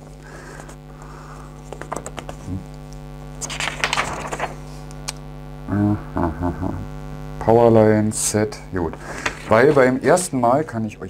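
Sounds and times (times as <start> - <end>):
steady electrical hum: 0.0 - 11.0
paper rustling and crinkling: 0.4 - 4.9, 8.8 - 10.3.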